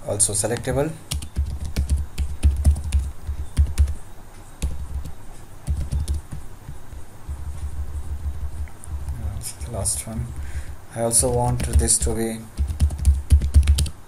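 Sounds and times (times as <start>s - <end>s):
typing on computer keyboard: 0.5s - 4.0s, 4.6s - 6.4s, 11.2s - 14.0s.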